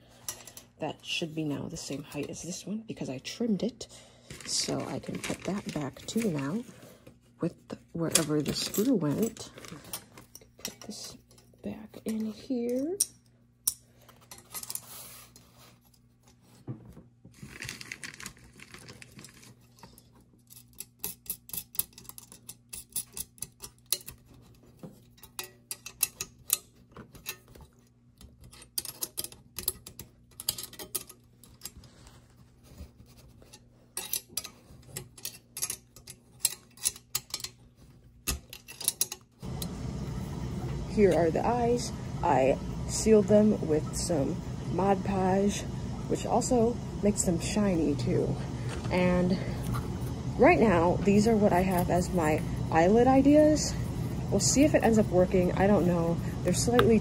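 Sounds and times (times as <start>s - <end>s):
faint steady hum: 0.0s - 57.0s
metal hardware clicking: 28.2s - 31.8s, 34.0s - 37.6s, 38.2s - 39.3s
loud background rumble: 39.4s - 57.0s.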